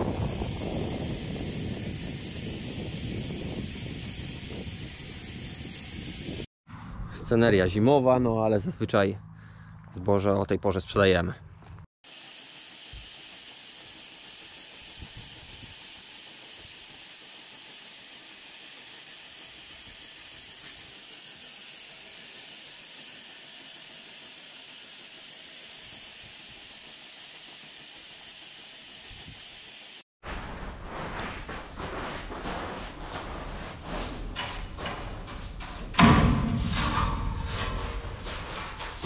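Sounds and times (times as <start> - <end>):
grain pouring from silo hiss: 0.0 - 6.5, 12.1 - 30.0, 30.8 - 34.2.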